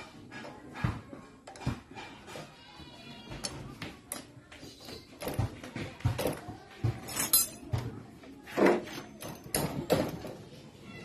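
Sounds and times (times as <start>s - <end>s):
metal tools clinking: 7.0s - 7.6s.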